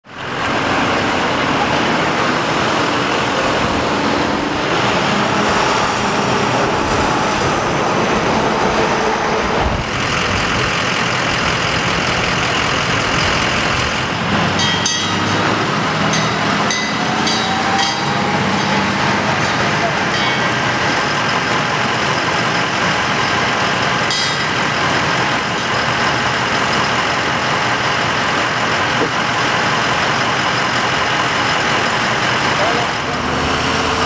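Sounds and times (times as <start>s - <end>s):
traffic noise: 0.0s - 34.0s
metallic rattles: 14.4s - 27.0s.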